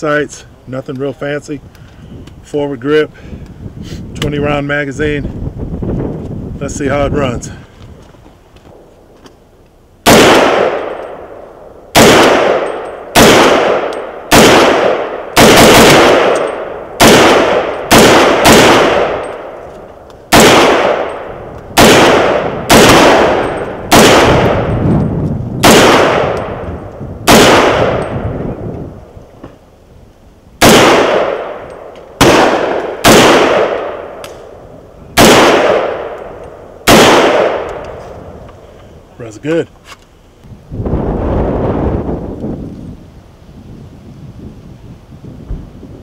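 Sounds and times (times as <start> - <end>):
gunshots with long echo: 10.0 - 19.7, 20.3 - 29.1, 30.6 - 38.5.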